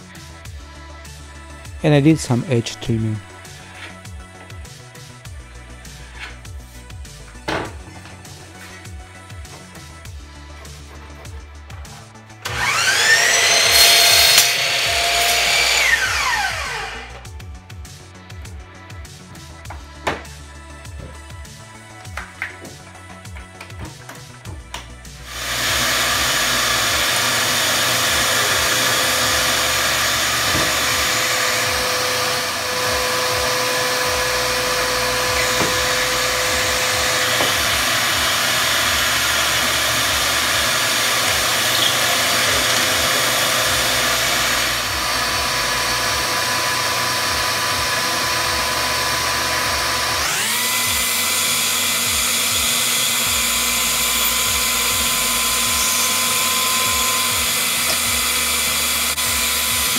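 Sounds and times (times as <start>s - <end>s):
dust extractor humming: 12.4s - 17.2s, 25.2s - 59.9s
drill boring into wood: 12.4s - 17.3s, 25.2s - 59.9s
sander whining: 12.4s - 17.3s, 25.2s - 59.9s.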